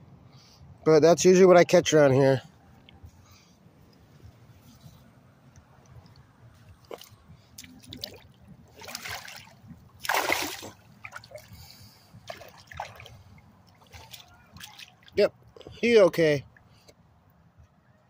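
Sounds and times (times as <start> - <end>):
shark splashing in water: 7.7 - 11.5.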